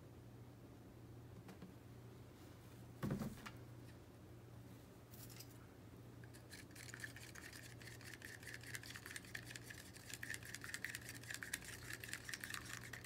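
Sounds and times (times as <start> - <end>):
stick stirring paint in plastic cup: 6.2 - 13.0.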